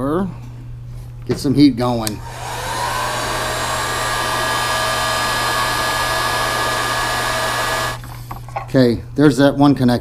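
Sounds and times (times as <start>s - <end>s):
heat gun blowing with fan whine: 2.0s - 8.0s.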